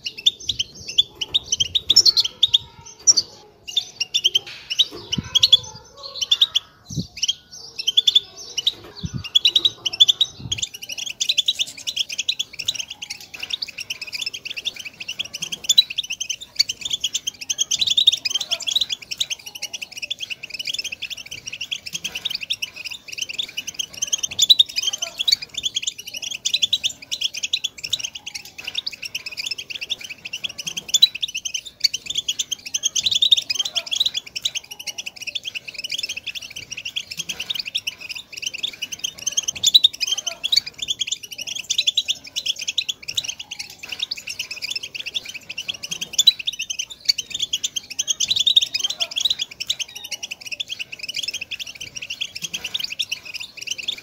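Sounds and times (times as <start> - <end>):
finches twittering: 0.0 - 54.0.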